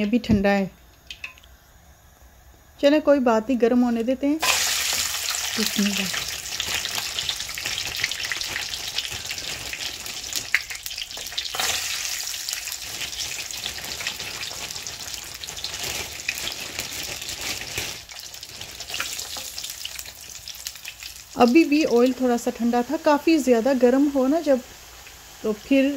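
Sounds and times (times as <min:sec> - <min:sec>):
chips sizzling in oil: 0:04.4 - 0:25.9.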